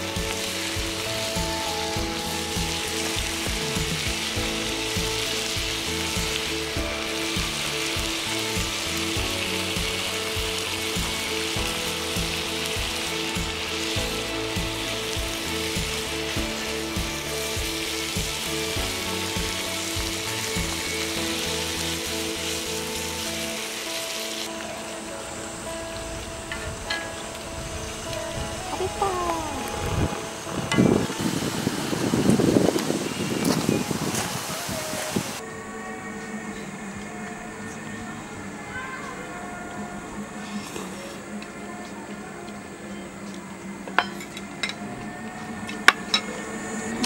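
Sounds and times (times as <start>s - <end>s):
food sizzling on a griddle: 0.0s - 25.3s, 25.9s - 35.4s.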